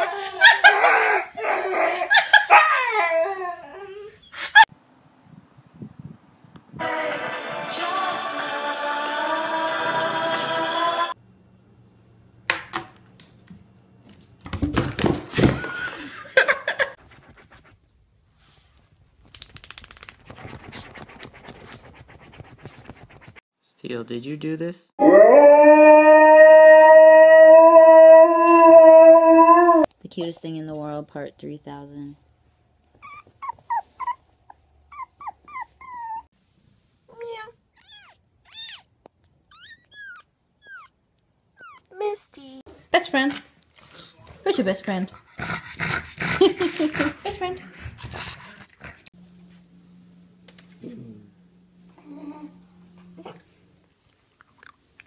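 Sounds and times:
dog claws scratching fabric: 0:19.2 - 0:23.4
puppy whimpering: 0:33.0 - 0:36.3, 0:37.8 - 0:38.9, 0:39.5 - 0:41.0, 0:41.6 - 0:42.0.

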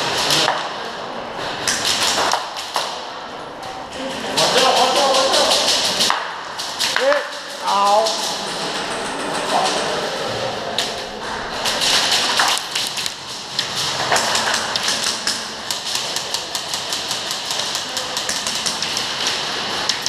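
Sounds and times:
airsoft guns firing: 0:04.4 - 0:08.6, 0:11.6 - 0:20.0.

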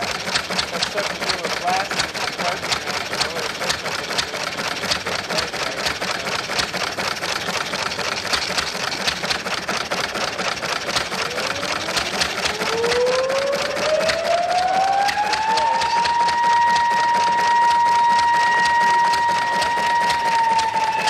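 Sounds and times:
stationary engine pops and clicks: 0:00.0 - 0:21.0
whine rising in pitch: 0:11.3 - 0:21.0.

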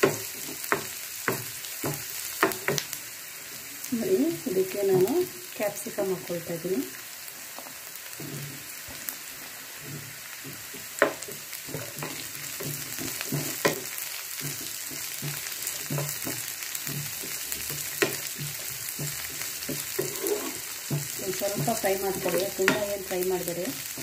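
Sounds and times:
vegetables sizzling in oil: 0:00.0 - 0:24.0
wooden spatula scraping a pan: 0:07.7 - 0:24.0.

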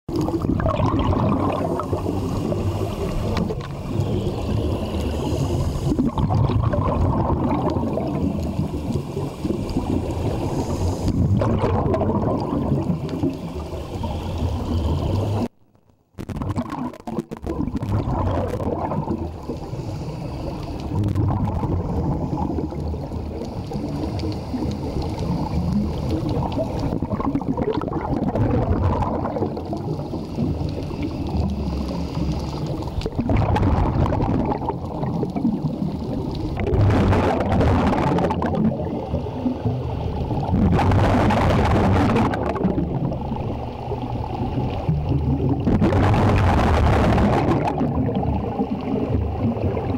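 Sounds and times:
underwater regulator bubbling: 0:00.1 - 0:15.5, 0:16.2 - 0:49.9
faint hiss: 0:01.5 - 0:06.2, 0:07.9 - 0:11.4, 0:12.8 - 0:15.5, 0:19.0 - 0:27.0, 0:29.6 - 0:33.2.

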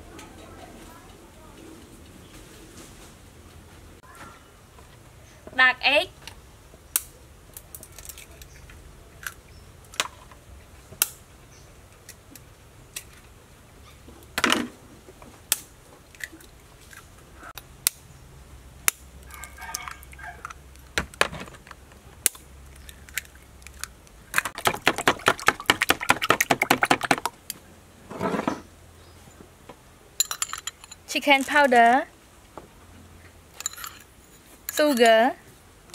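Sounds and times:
eggs cracking against bowl: 0:18.9 - 0:27.5
eggs beaten in bowl: 0:22.8 - 0:27.3.

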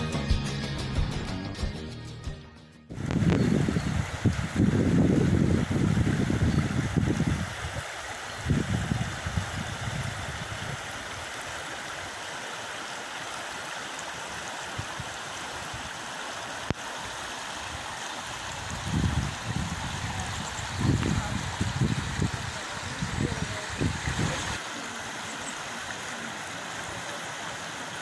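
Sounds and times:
wind buffeting microphone: 0:02.9 - 0:11.2, 0:18.3 - 0:24.6
river rushing over stones: 0:03.0 - 0:28.0.

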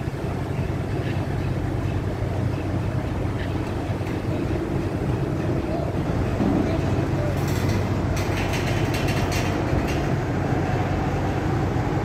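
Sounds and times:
diesel locomotives droning: 0:00.0 - 0:12.0.

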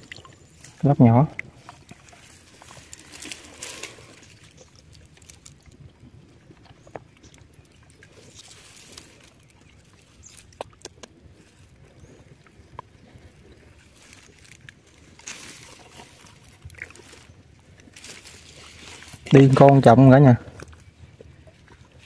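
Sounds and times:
reeds rustling: 0:00.0 - 0:06.0, 0:07.2 - 0:10.6, 0:13.0 - 0:20.8.

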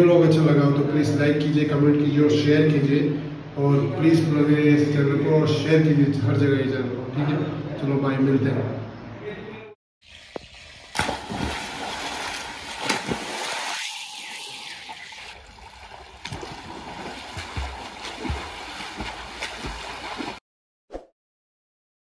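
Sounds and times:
water rushing and gurgling: 0:10.1 - 0:20.4.

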